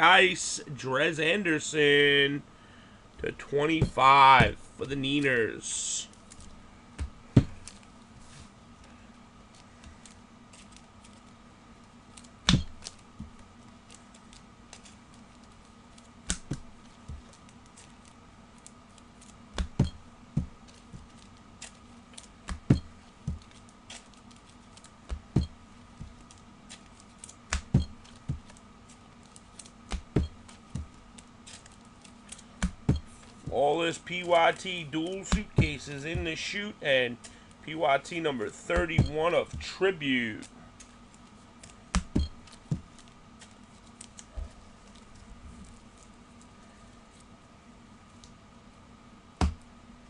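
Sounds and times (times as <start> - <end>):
faint steady hum: 0.0 - 50.0.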